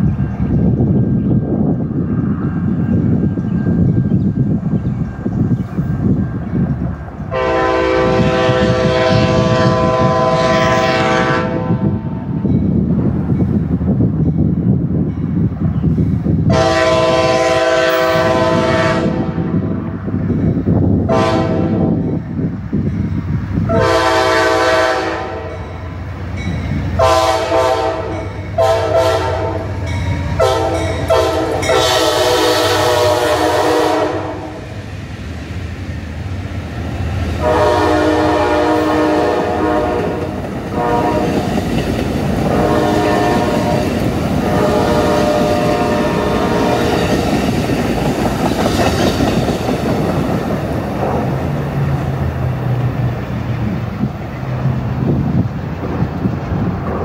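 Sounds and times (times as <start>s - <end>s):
train wheels rumbling on rail: 0.0s - 57.0s
locomotive air horn: 7.3s - 12.0s, 16.5s - 19.7s, 21.1s - 22.0s, 23.7s - 25.7s, 27.0s - 29.8s, 30.4s - 34.6s, 37.4s - 41.5s, 42.4s - 47.2s.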